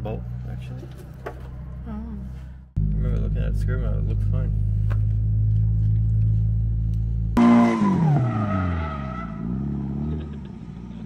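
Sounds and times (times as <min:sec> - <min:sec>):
steady low drone: 0:01.5 - 0:07.4
car engine revving while drifting: 0:07.4 - 0:11.0
tyres skidding: 0:07.4 - 0:11.0.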